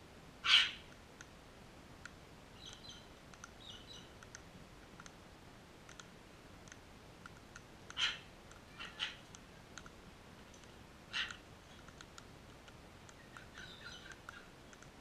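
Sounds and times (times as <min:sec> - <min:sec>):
cockatoo squawks: 0:00.4 - 0:00.9, 0:08.0 - 0:09.3, 0:11.1 - 0:11.4
beaks pecking at ground: 0:02.0 - 0:05.2, 0:05.8 - 0:15.0
soft bird chirping: 0:02.5 - 0:04.4, 0:07.9 - 0:09.9, 0:10.5 - 0:12.2, 0:13.0 - 0:15.0.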